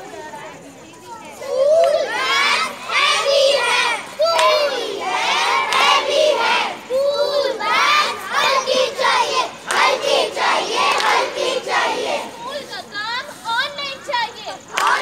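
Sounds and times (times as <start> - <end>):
children shouting chants: 1.2 - 15.0.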